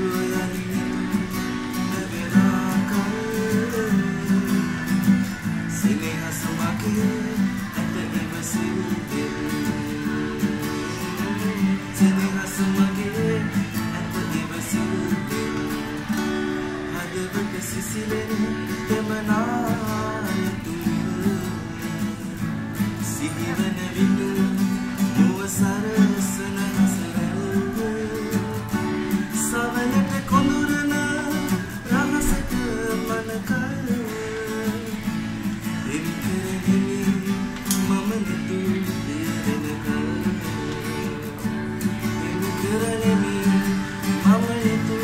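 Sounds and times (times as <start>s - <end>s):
man singing: 0.0s - 45.0s
strummed nylon-string guitar: 0.0s - 45.0s.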